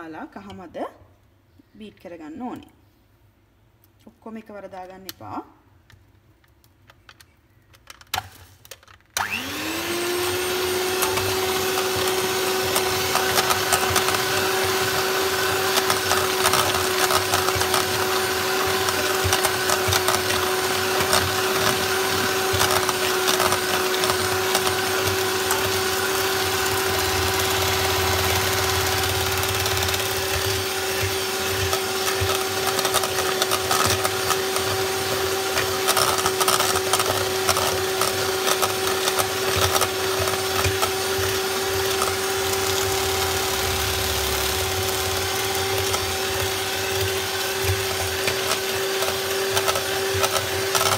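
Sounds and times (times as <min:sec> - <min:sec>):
electric hand mixer whining: 0:09.2 - 0:50.9
beaters clicking in steel bowl: 0:26.6 - 0:50.9.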